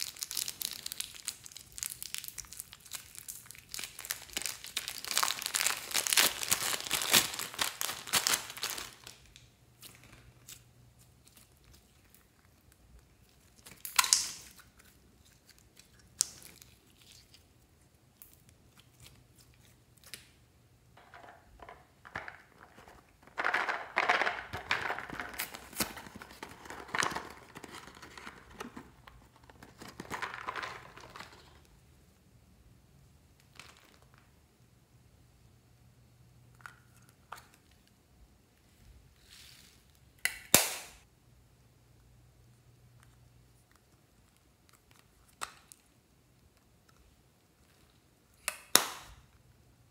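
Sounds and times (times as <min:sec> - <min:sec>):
plastic bag crinkling: 0:00.0 - 0:10.4, 0:22.6 - 0:31.6.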